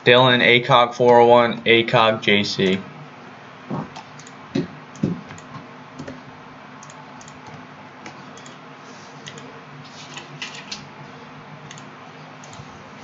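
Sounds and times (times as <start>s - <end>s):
keyboard typing: 6.8s - 8.6s.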